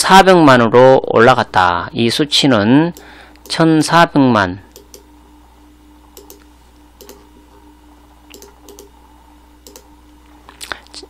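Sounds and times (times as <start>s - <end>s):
faint steady hum: 0.0s - 11.0s
mouse and keyboard clicks: 8.3s - 8.9s.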